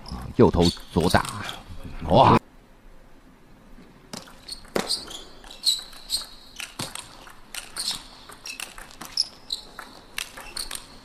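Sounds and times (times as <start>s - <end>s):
table tennis ball clicking: 4.2s - 11.0s.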